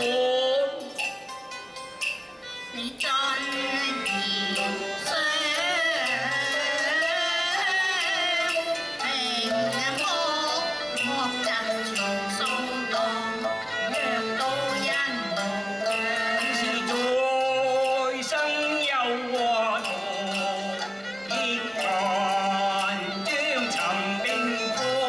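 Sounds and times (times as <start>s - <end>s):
traditional instrumental accompaniment: 0.0s - 25.0s
man singing opera: 15.8s - 25.0s.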